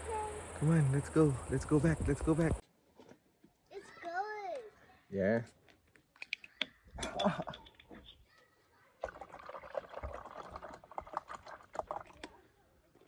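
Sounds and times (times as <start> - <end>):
water glugging and splashing: 9.0 - 12.5.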